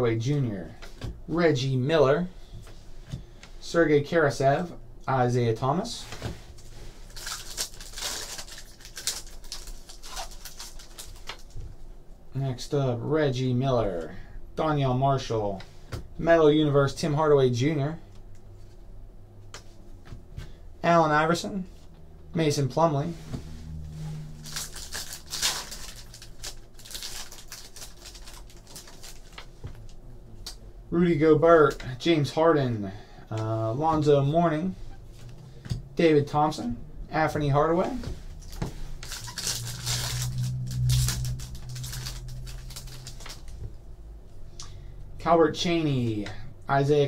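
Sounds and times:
card pack wrapper crinkling: 7.1 - 11.6, 24.4 - 29.6, 38.4 - 43.5.

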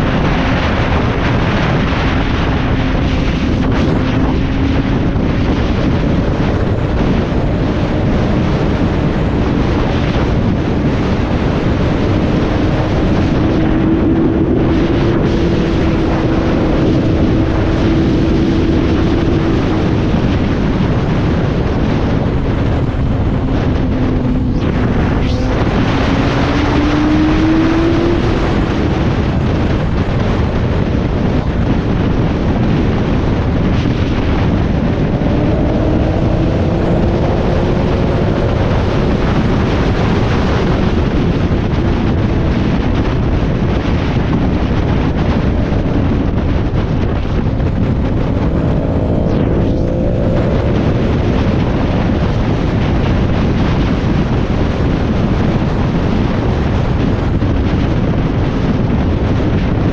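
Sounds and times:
heavy wind noise on microphone: 0.0 - 59.9.

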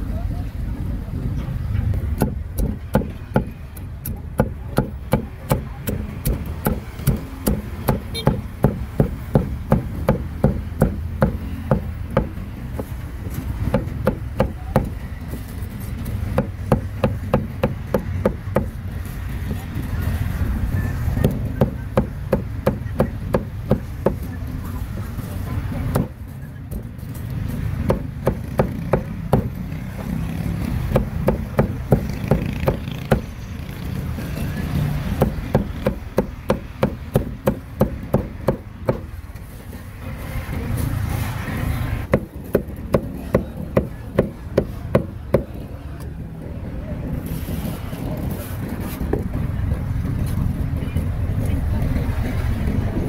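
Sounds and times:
cleaver chopping on wooden board: 2.2 - 12.9, 27.8 - 29.6, 30.9 - 33.3, 35.1 - 39.1.

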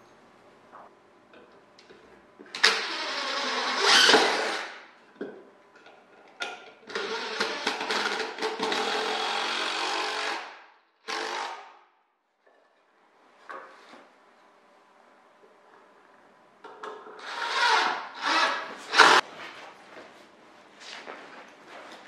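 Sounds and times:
cordless drill into wood: 2.6 - 4.8, 6.9 - 11.7, 17.2 - 19.2.

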